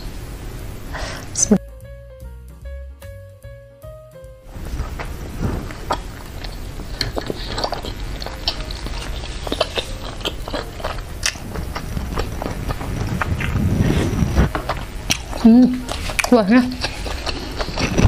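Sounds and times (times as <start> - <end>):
wet chewing mouth sounds: 4.8 - 18.0.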